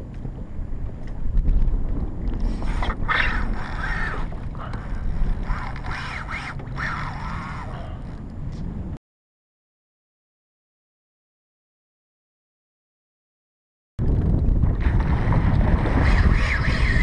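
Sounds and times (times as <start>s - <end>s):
wind buffeting microphone: 0.0s - 9.0s, 14.0s - 17.0s.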